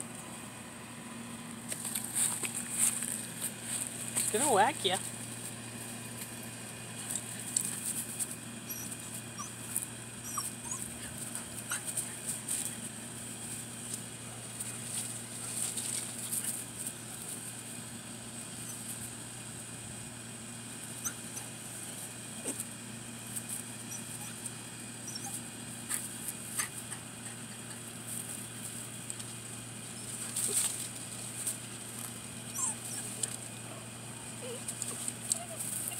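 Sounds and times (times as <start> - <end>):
dog whimpering: 8.7 - 9.6, 10.2 - 12.2, 25.0 - 25.4, 32.5 - 33.3, 34.2 - 35.9
small clicks and rustles: 13.9 - 17.5, 30.1 - 32.2, 34.6 - 35.9.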